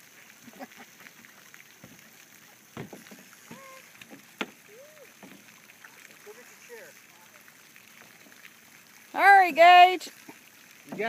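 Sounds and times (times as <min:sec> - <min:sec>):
paddle strokes splashing: 0:00.0 - 0:11.0
paddle knocking against hull: 0:02.7 - 0:04.6, 0:05.2 - 0:05.5, 0:10.3 - 0:11.0.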